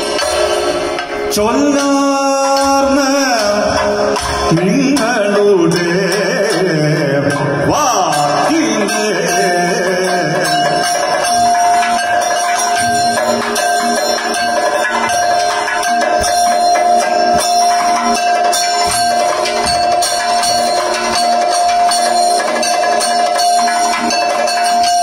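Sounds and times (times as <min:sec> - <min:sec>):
drums beating: 0:00.0 - 0:25.0
man singing: 0:01.3 - 0:11.2.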